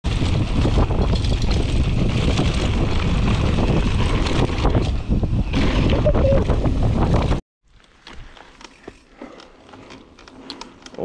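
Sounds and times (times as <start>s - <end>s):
wind buffeting microphone: 0.1s - 7.4s
bike rattling over bumps: 0.1s - 11.0s
rumble of bike tyres: 0.1s - 11.0s.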